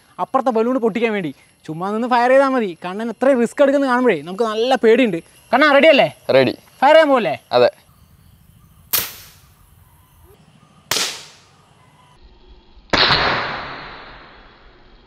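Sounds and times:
balloon bang: 8.9s - 9.4s, 10.9s - 11.4s
air pistol shots: 8.9s - 9.5s, 10.9s - 11.5s, 12.9s - 14.3s.

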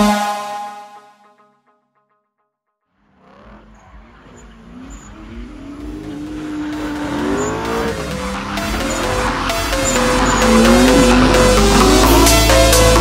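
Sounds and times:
car engine: 2.9s - 13.0s
tyres squealing: 3.6s - 12.9s
electronic music with steady beat: 4.8s - 13.0s.

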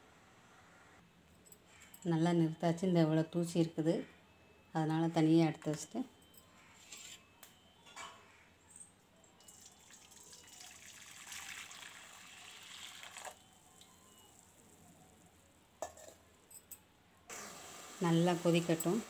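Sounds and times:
syrup pouring into a pan: 9.6s - 13.4s.

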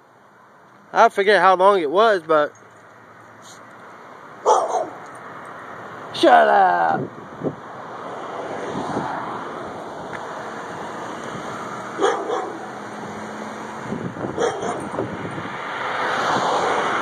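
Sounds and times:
outdoor street noise: 0.0s - 17.0s
dog barking: 4.4s - 5.0s, 12.0s - 12.6s, 14.4s - 14.9s.

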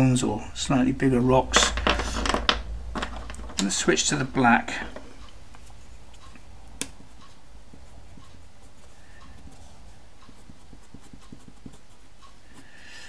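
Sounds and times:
low steady hum: 0.0s - 13.0s
pencil scratching on paper: 6.9s - 12.9s.

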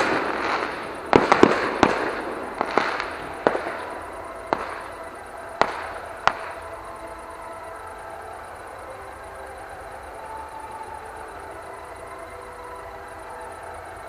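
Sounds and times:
fireworks bangs with echo: 0.0s - 7.3s.

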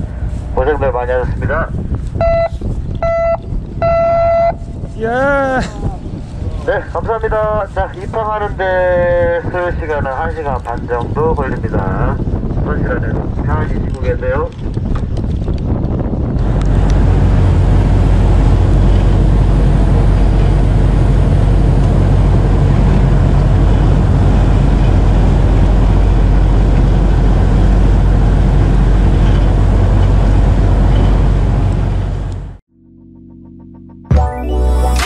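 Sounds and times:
dense rush of noise: 0.0s - 2.8s, 16.1s - 32.6s
boat engine droning: 16.4s - 33.5s.

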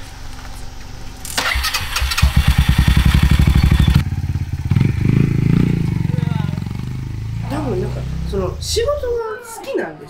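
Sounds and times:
small motorcycle engine running: 1.3s - 8.8s.

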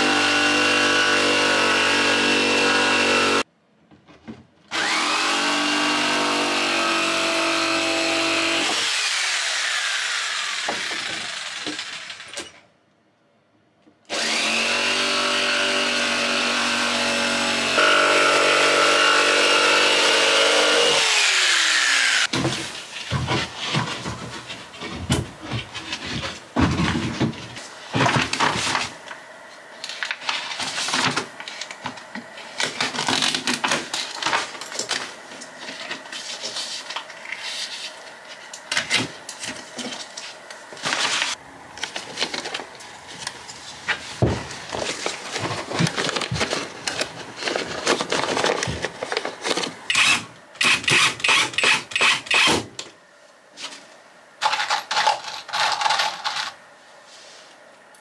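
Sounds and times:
screws rattling in a box: 54.4s - 56.6s.

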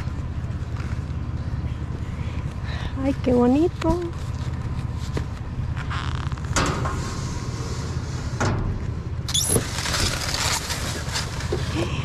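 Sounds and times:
items knocking and scraping in dumpster: 8.6s - 11.9s
short squeak: 9.3s - 9.6s.

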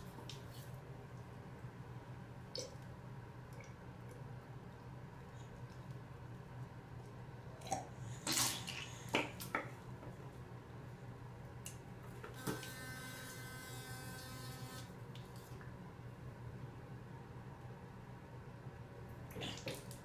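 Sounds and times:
electric toothbrush buzzing: 12.4s - 15.0s.

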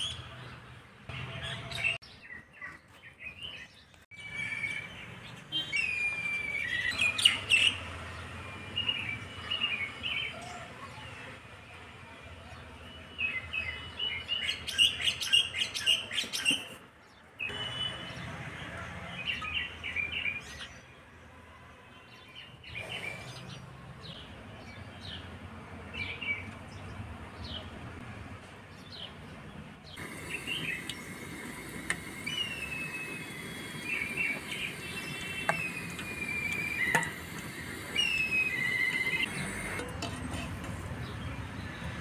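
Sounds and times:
small birds chirping: 28.7s - 39.8s.

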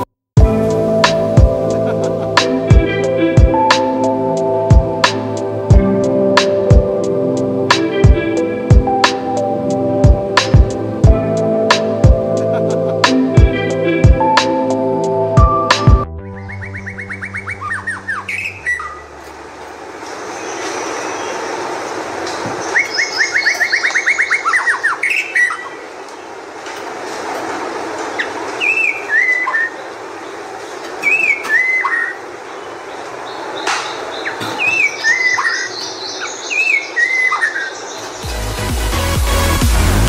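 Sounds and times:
bird singing trills and whistles: 16.3s - 19.1s, 22.5s - 25.8s, 28.2s - 29.9s, 31.0s - 32.2s, 33.2s - 38.2s.

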